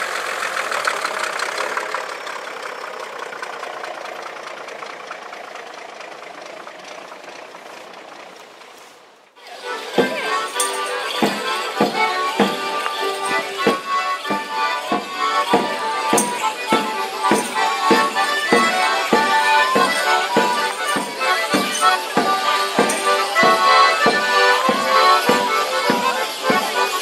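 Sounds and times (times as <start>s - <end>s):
accordion melody: 9.4s - 27.0s
steady percussive beat: 9.6s - 27.0s
tambourine jingling: 9.7s - 27.0s.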